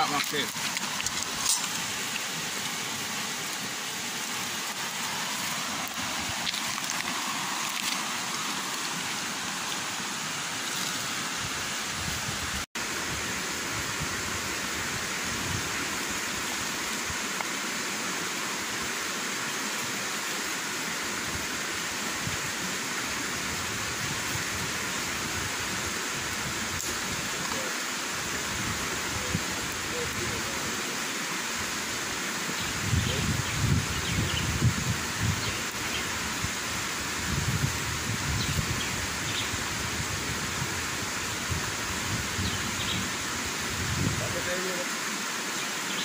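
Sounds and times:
river water rushing: 0:00.0 - 0:33.8.

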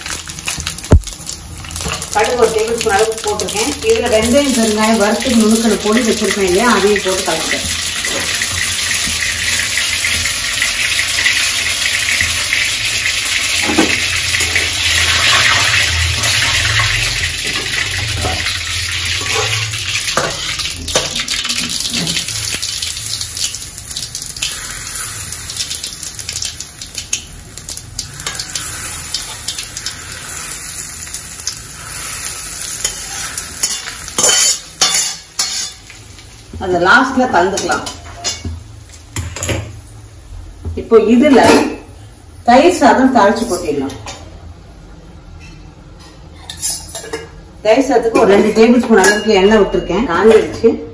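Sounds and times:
hot oil sizzling: 0:00.0 - 0:40.3
spatula scraping a pan: 0:31.9 - 0:35.8.

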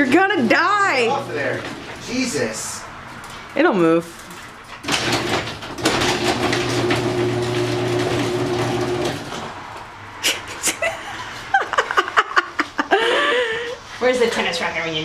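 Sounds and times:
garage door motor humming: 0:00.9 - 0:02.0, 0:04.7 - 0:09.7.

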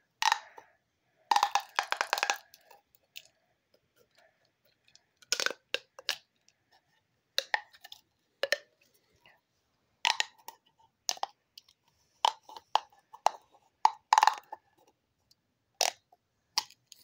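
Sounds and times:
pop tube toy popping: 0:01.3 - 0:02.6, 0:13.9 - 0:14.5.

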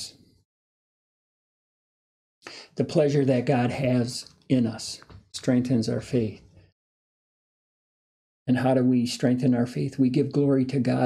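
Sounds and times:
man speaking: 0:00.0 - 0:00.2, 0:02.5 - 0:06.5, 0:08.5 - 0:11.0.

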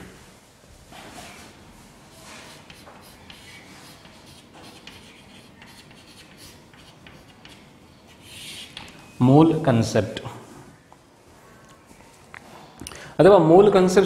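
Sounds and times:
chalk scratching on chalkboard: 0:02.1 - 0:08.9
chalk tapping: 0:02.3 - 0:09.0.

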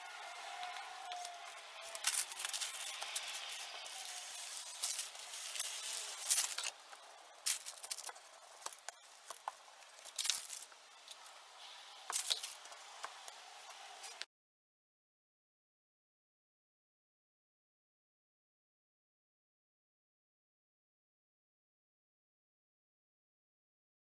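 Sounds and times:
hand roller scrapes and clicks: 0:00.0 - 0:10.6
paper rustling: 0:00.5 - 0:11.2, 0:12.1 - 0:12.8.

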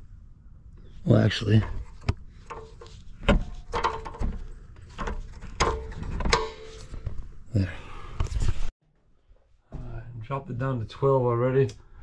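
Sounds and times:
sharp knocks and clicks: 0:01.6 - 0:07.2.

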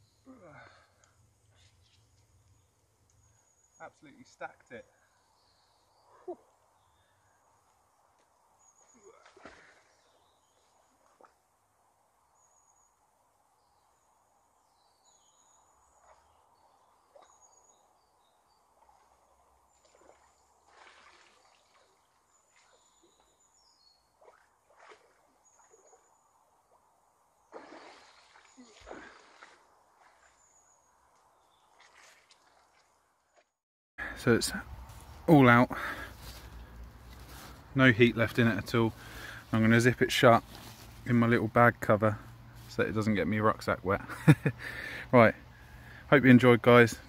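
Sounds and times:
faint birdsong: 0:00.0 - 0:47.0
soft water splashes: 0:08.9 - 0:11.4, 0:18.6 - 0:23.4, 0:24.1 - 0:26.8, 0:27.4 - 0:30.7, 0:31.4 - 0:33.5.

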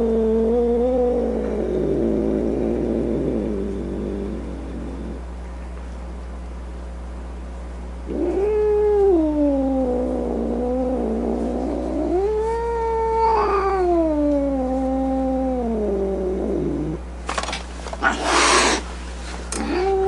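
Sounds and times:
steady low hum: 0:00.0 - 0:20.0
cat yowling: 0:12.0 - 0:16.1, 0:19.6 - 0:20.0.

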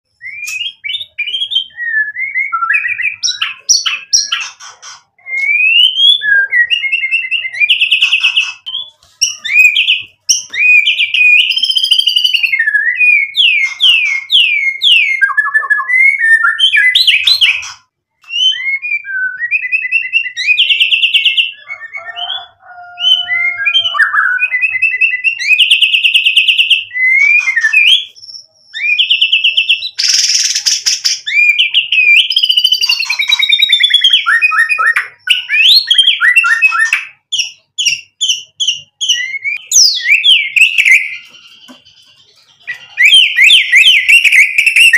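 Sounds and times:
songbird whistles and trills: 0:00.1 - 0:44.9.

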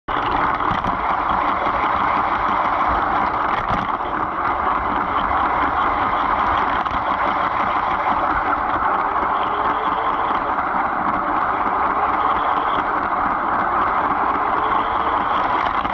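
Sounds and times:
toy train wheels and motor rolling: 0:00.1 - 0:15.9.

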